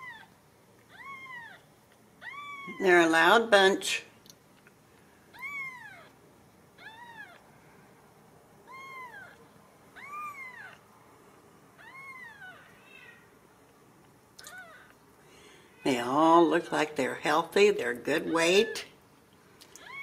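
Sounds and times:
kittens mewing: 0:08.7 - 0:09.4, 0:10.0 - 0:10.8, 0:14.4 - 0:15.0.

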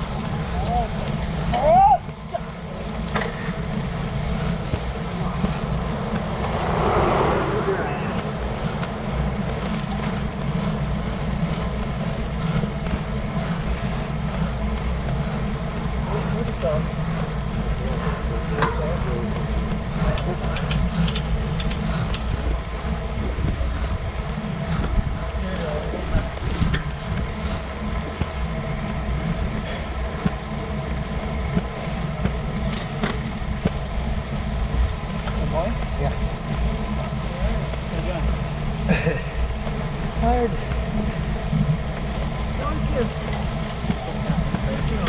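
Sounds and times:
tyres hissing on asphalt: 0:00.0 - 0:26.0, 0:27.0 - 0:45.0
bike clicks: 0:00.0 - 0:45.0
wind buffeting microphone: 0:02.2 - 0:45.0
wind rushing over microphone: 0:03.7 - 0:10.4.

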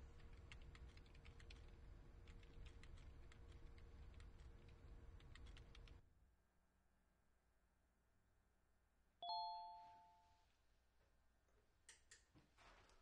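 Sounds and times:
rapid irregular clicking: 0:00.0 - 0:06.0.

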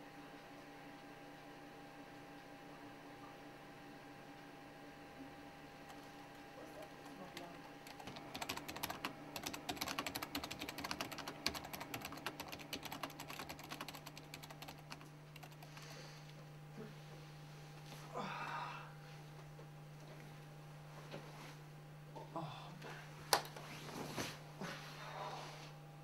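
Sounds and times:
faint steady hum: 0:00.0 - 0:26.0
fast typing on keyboard: 0:05.9 - 0:15.8.

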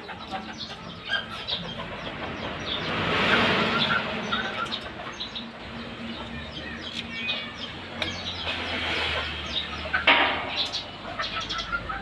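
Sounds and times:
chickens clucking: 0:00.0 - 0:12.0
small birds chirping: 0:00.0 - 0:12.0.

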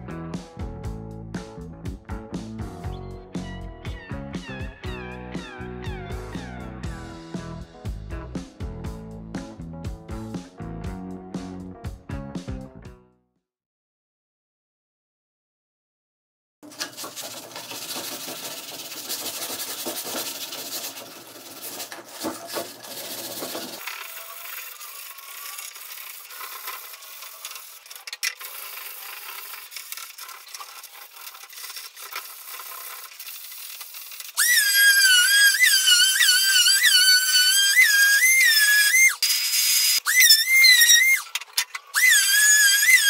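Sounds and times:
sandpaper rubbing on wood: 0:17.0 - 0:41.2.

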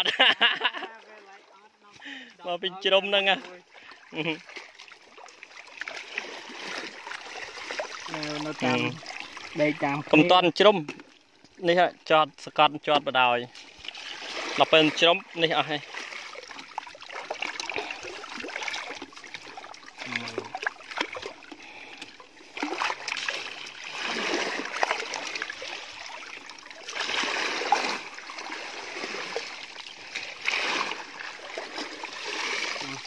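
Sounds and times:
muddy water splashing: 0:00.0 - 0:33.0
wet grass rustling: 0:13.5 - 0:33.0.

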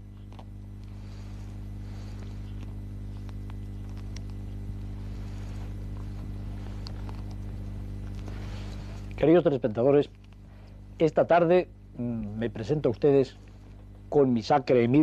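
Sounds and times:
faint clicks and crackle: 0:00.0 - 0:11.1
low hum: 0:00.0 - 0:15.0.

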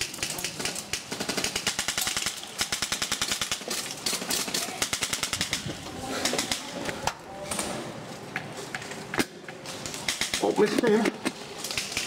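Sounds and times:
airsoft guns firing full auto: 0:00.0 - 0:06.7.

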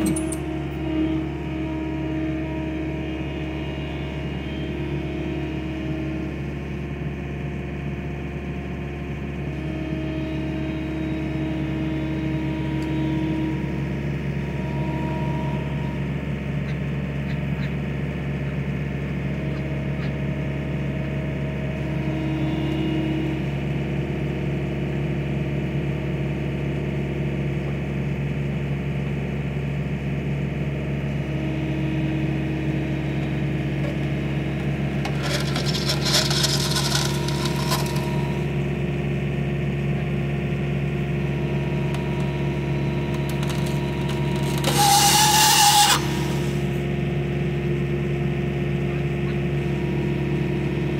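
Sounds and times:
hydraulic whine: 0:00.0 - 0:26.1, 0:30.2 - 0:50.9
loader engine running: 0:00.0 - 0:50.9
clattering: 0:35.0 - 0:38.3.

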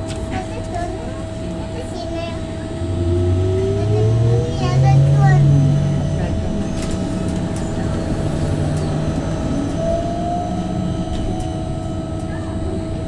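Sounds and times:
electric drive whine: 0:00.0 - 0:13.0
road and body noise: 0:02.2 - 0:12.5.

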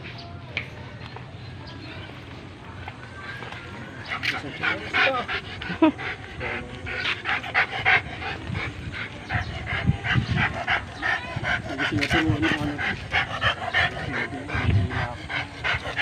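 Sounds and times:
dog panting rapidly: 0:03.7 - 0:16.0.

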